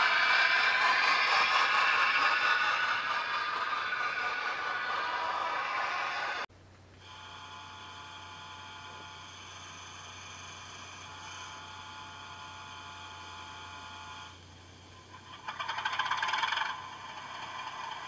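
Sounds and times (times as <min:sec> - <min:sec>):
high whistling tones: 0:00.0 - 0:06.5.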